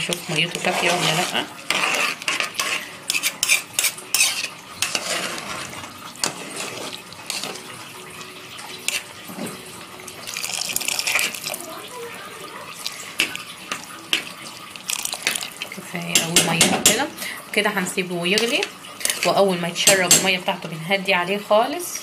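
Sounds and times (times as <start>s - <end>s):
spoon scraping a pot: 0.0s - 7.7s, 8.8s - 9.6s, 10.2s - 11.6s, 12.8s - 17.1s, 18.3s - 20.4s.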